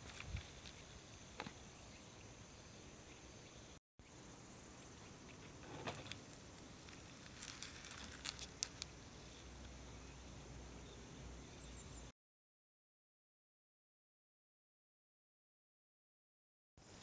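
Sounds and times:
faint outdoor ambience: 0.0s - 12.1s, 16.8s - 17.0s.

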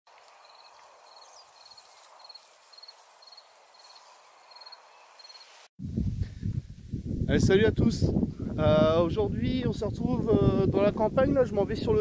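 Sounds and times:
cricket chirping: 0.2s - 5.6s.

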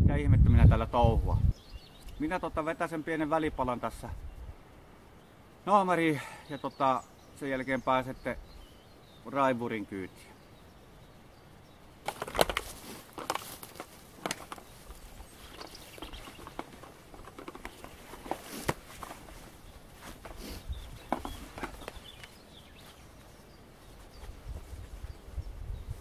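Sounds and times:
buckles clicking: 12.0s - 22.4s
footsteps on dry undergrowth: 12.0s - 26.0s
harness straps rustling: 12.0s - 26.0s.

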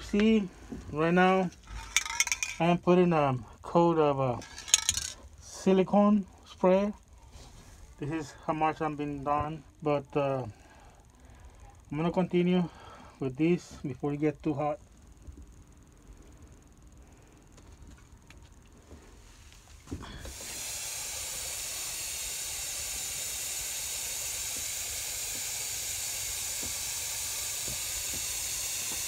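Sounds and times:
aerosol spray hissing: 20.3s - 29.0s.

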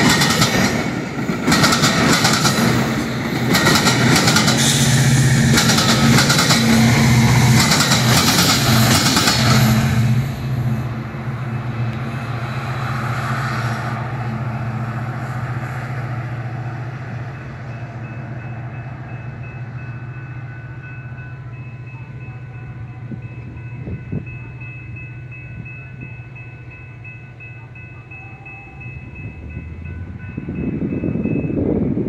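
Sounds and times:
wheels clicking on rails: 0.0s - 9.8s
diesel train engine drone: 0.0s - 32.0s
crossing bell ringing: 4.1s - 12.4s, 16.8s - 32.0s.

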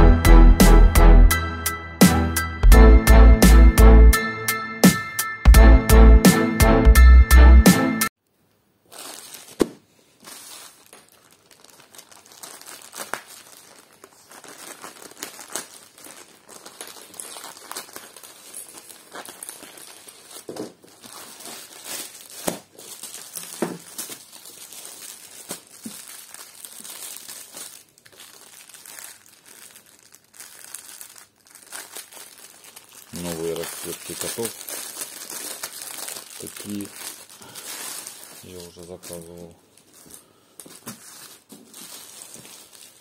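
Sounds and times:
plastic packaging crinkling: 8.8s - 43.0s.

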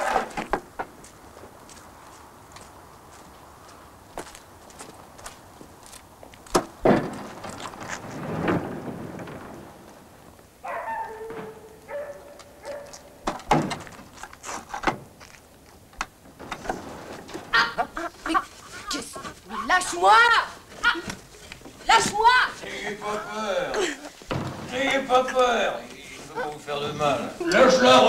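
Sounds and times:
wagon door knocks and thuds: 6.5s - 10.0s, 13.2s - 14.2s, 16.0s - 17.8s, 24.3s - 25.1s.

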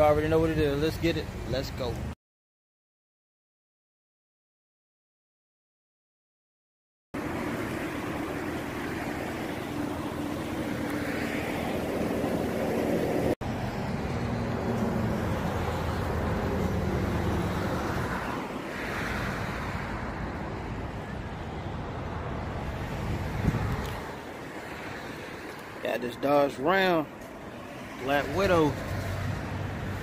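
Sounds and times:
wind buffeting microphone: 21.8s - 25.5s.

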